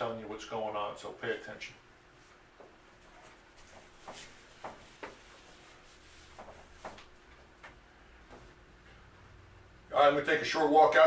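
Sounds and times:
eraser rubbing whiteboard: 0:03.1 - 0:07.1.

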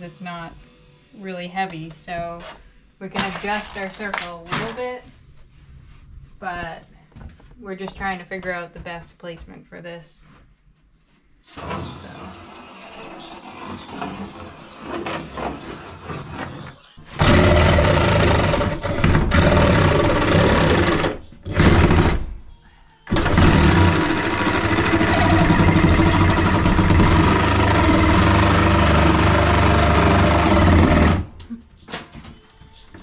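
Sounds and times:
reciprocating saw cutting plywood: 0:11.5 - 0:22.2, 0:23.1 - 0:31.3.

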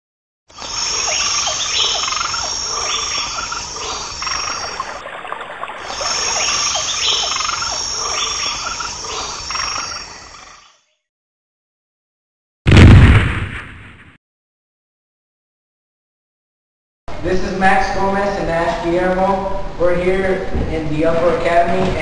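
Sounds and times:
high insect trill: 0:00.5 - 0:05.0, 0:05.9 - 0:11.0
frog calls: 0:00.5 - 0:11.0.

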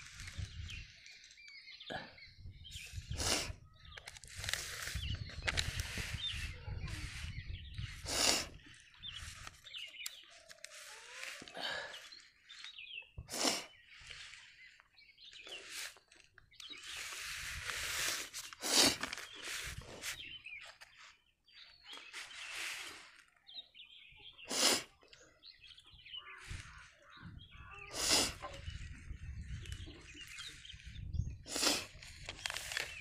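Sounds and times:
birds chirping faintly: 0:00.0 - 0:33.0
paper pages rustling: 0:04.0 - 0:07.0, 0:08.7 - 0:11.5, 0:15.6 - 0:21.2, 0:31.9 - 0:33.0.

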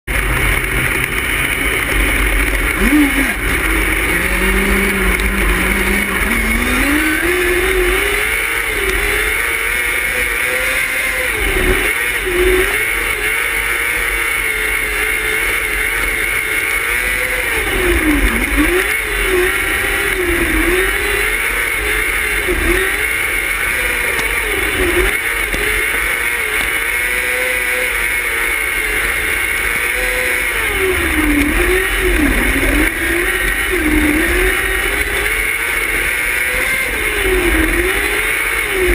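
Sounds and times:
race car engine accelerating: 0:00.0 - 0:38.9.

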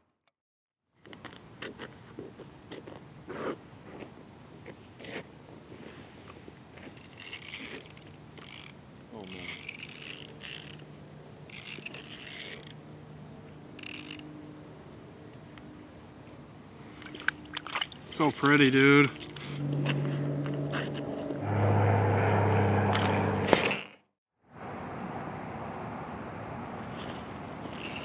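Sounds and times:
spinning reel gears whirring: 0:07.0 - 0:10.9, 0:11.5 - 0:12.8, 0:13.8 - 0:14.3, 0:27.7 - 0:28.0.

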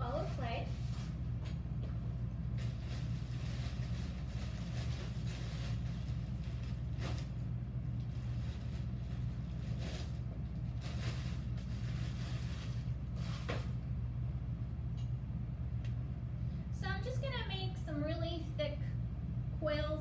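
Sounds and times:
plastic bag rustling: 0:00.0 - 0:01.3, 0:02.4 - 0:13.9
low electric hum: 0:00.0 - 0:20.0.

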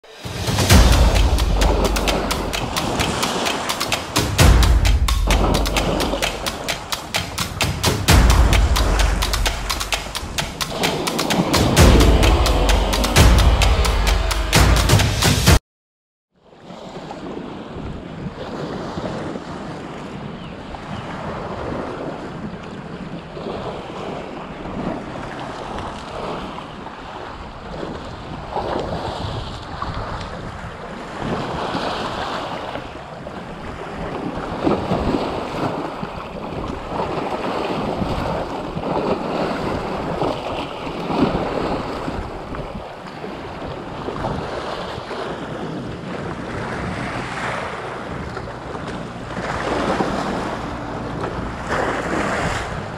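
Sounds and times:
small waves breaking over rocks: 0:16.6 - 0:52.9
wind buffeting microphone: 0:27.2 - 0:52.9.

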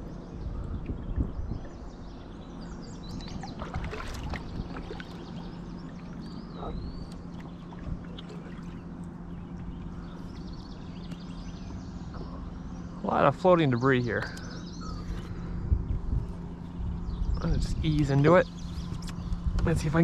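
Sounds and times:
paddle splashing in water: 0:03.2 - 0:06.4.

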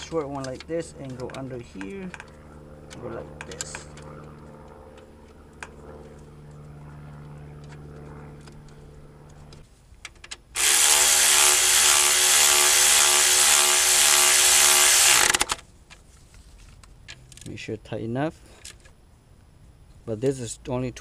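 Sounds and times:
electric ratchet running: 0:10.6 - 0:15.6.

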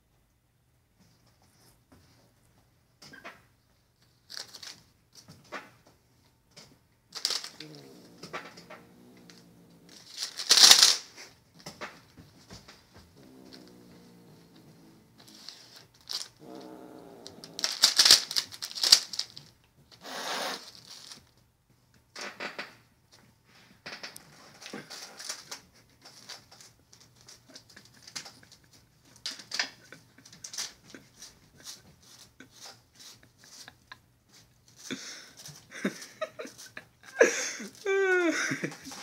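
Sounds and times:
foil packet crinkling: 0:10.0 - 0:11.1, 0:17.5 - 0:19.5.

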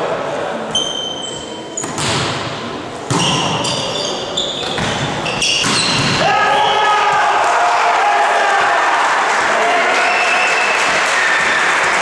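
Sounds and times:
shoes squeaking on court: 0:00.7 - 0:02.1, 0:03.1 - 0:06.2
volleyball hits: 0:01.8 - 0:03.9, 0:04.6 - 0:07.3.

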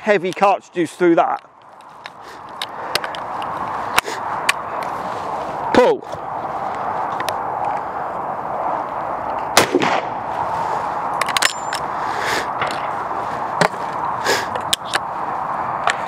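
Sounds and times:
shotgun shot: 0:09.6 - 0:10.1.

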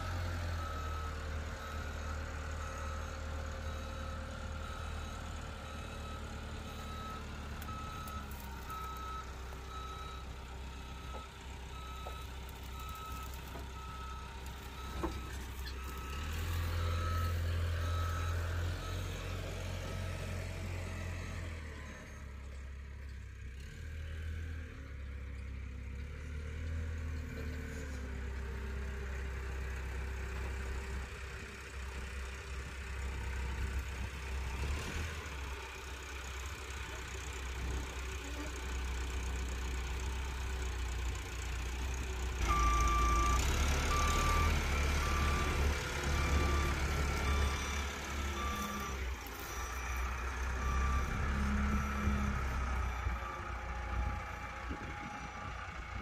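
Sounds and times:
forklift engine running: 0:00.0 - 0:56.0
reversing alarm beeping: 0:14.8 - 0:19.4, 0:42.4 - 0:56.0.

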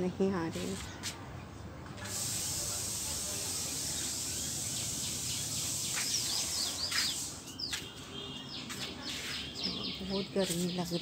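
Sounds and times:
steady hiss: 0:02.0 - 0:07.6
small birds chirping: 0:02.1 - 0:11.0.

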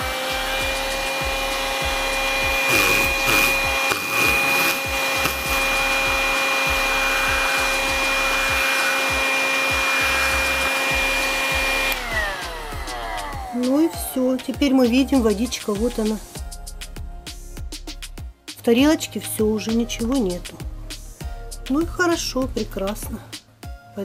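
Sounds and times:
handheld vacuum whine: 0:00.0 - 0:13.6.

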